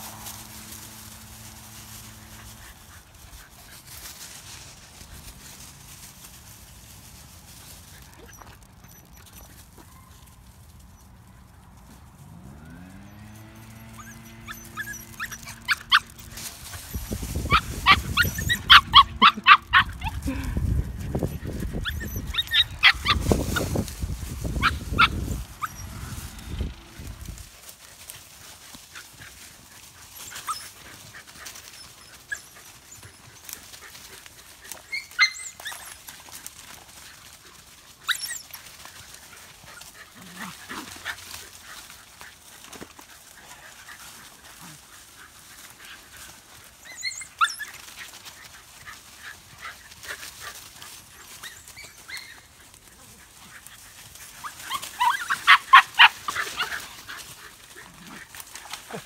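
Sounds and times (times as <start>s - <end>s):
dogs running through dry leaves: 0.0s - 59.0s
dogs barking high: 12.3s - 27.4s, 36.9s - 59.0s.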